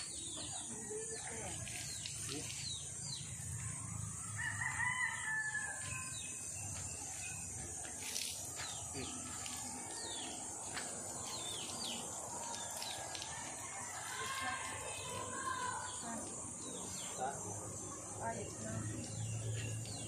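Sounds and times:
rooster crowing: 4.3s - 6.2s.

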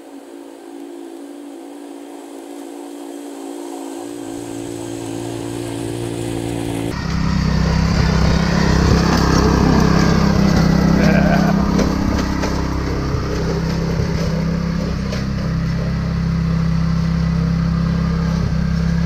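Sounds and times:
lawn aerator engine running: 4.0s - 19.0s.

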